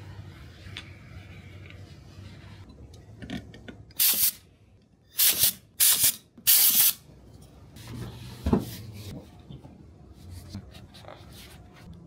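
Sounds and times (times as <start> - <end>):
hissing spray bursts: 5.2 - 7.0.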